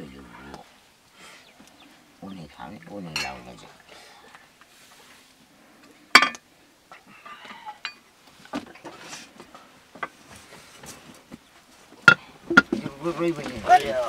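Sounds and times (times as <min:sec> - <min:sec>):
metal pots and utensils clinking: 0:03.1 - 0:03.5, 0:06.2 - 0:06.4.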